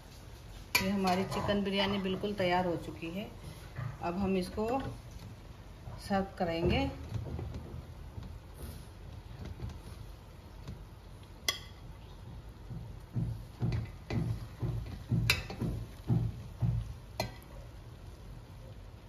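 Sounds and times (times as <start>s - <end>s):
spoon clinking on metal pot: 11.4s - 11.8s
soft dull thumps: 12.2s - 17.4s.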